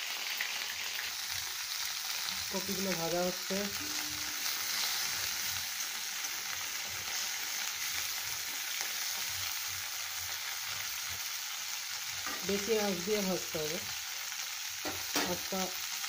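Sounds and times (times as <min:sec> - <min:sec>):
vegetables sizzling in hot oil: 0:00.0 - 0:16.0.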